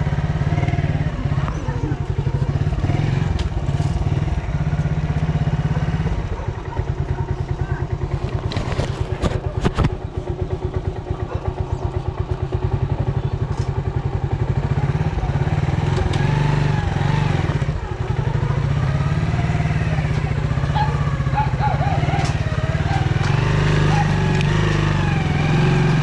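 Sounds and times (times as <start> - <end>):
motorcycle engine idling: 0.0 - 26.0
faint voices: 1.1 - 2.9, 6.2 - 12.0.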